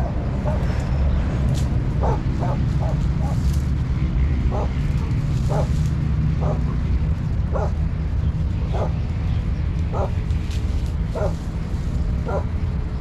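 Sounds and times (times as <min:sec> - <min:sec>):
steady low rumble: 0:00.0 - 0:13.0
dog barking: 0:02.0 - 0:03.4, 0:04.5 - 0:04.8, 0:05.5 - 0:05.7, 0:06.4 - 0:06.7, 0:07.5 - 0:07.8, 0:08.7 - 0:09.0, 0:09.9 - 0:10.2, 0:11.2 - 0:11.4, 0:12.2 - 0:12.5.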